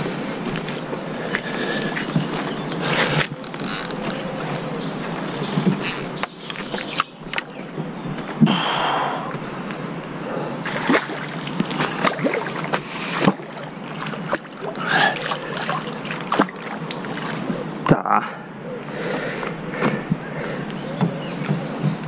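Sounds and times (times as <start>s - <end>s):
fish splashing in water: 10.6s - 17.4s.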